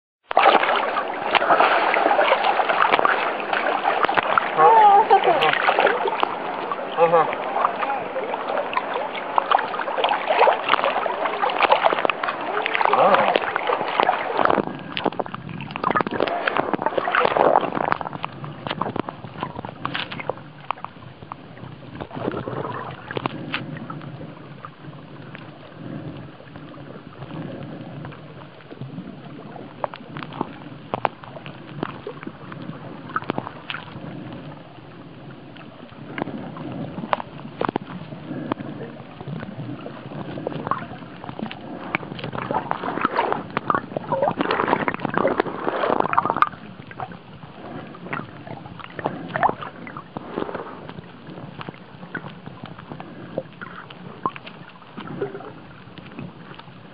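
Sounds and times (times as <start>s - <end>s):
muffled underwater wash: 0.2s - 56.9s
water splashing: 0.2s - 56.9s
sharp clicks and crackles: 11.6s - 24.2s, 29.8s - 34.6s, 35.5s - 47.1s.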